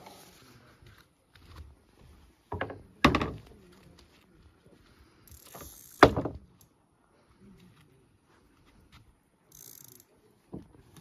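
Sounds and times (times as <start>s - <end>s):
fishing reel drag ratcheting: 5.3s - 6.0s, 9.5s - 10.1s.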